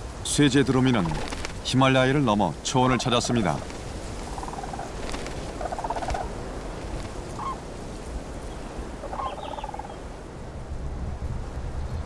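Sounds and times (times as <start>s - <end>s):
cranes calling: 4.2s - 6.3s, 7.3s - 7.6s, 9.0s - 10.0s.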